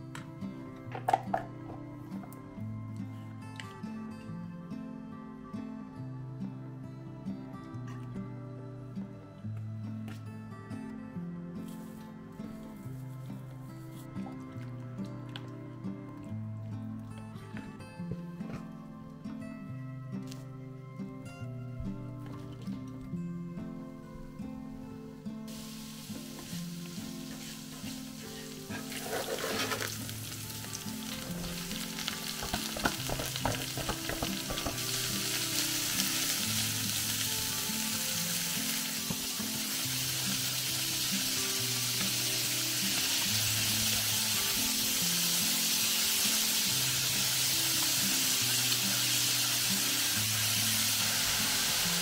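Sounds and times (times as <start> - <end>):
background music with low notes: 0.0 - 52.0
food sizzling in oil: 25.5 - 52.0.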